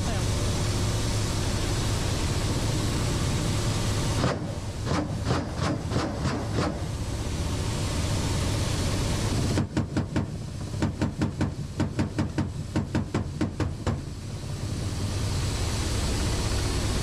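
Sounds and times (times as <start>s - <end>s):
helicopter engines and rotors droning: 0.0s - 17.0s
regular sharp knocks: 9.6s - 14.0s.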